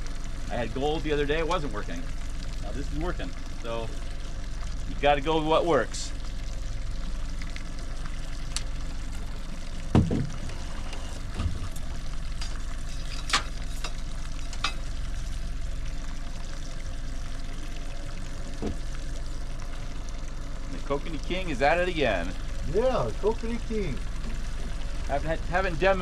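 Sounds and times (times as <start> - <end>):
low steady rumble: 0.0 - 26.0
dull knock: 9.9 - 10.3.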